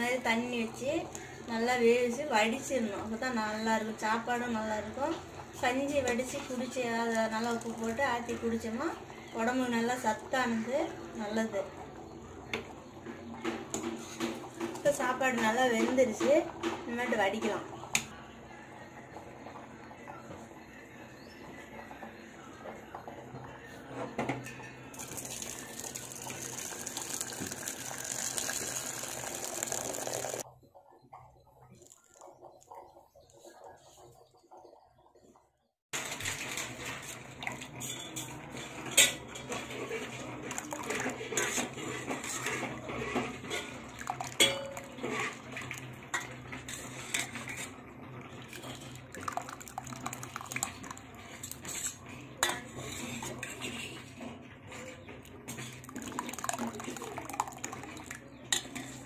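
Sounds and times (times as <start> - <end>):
water pouring into metal vessel: 24.9 - 30.4, 39.0 - 53.4, 55.4 - 59.0
ladle scraping a steel pot: 36.1 - 49.0, 50.8 - 59.0.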